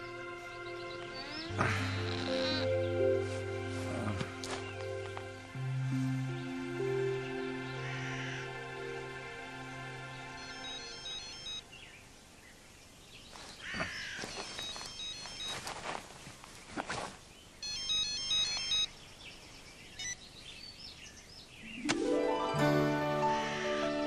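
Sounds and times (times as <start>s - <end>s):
phone electronic beeping tune: 10.4s - 11.6s, 14.3s - 15.6s, 17.6s - 18.9s
faint high chirps and clicks: 14.2s - 15.7s, 17.6s - 18.9s.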